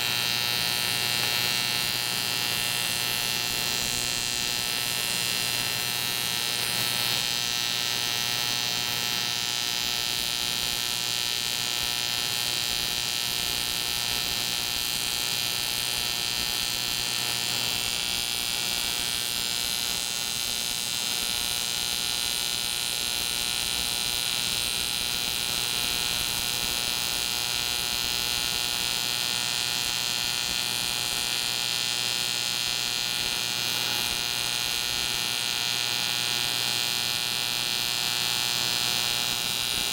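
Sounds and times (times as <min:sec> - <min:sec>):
welder buzzing: 0:00.0 - 0:39.9.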